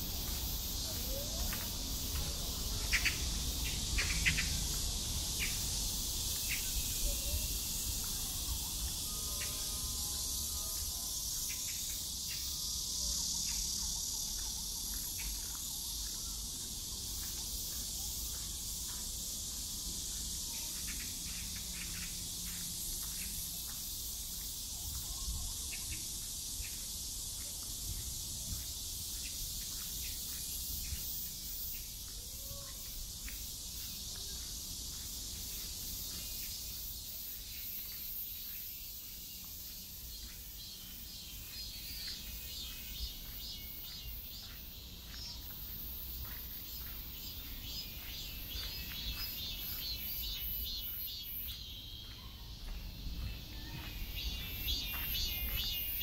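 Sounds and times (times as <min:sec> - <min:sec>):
insects chorus: 0:00.0 - 0:56.0.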